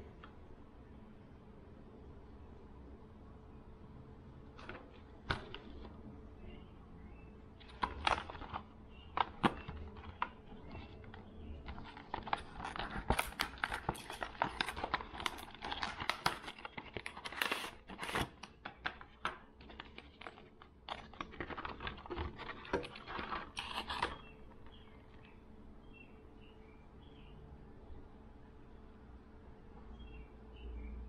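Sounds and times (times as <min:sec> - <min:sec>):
plastic packaging clicks: 0:07.6 - 0:25.3
plastic packaging crinkling: 0:07.6 - 0:25.3.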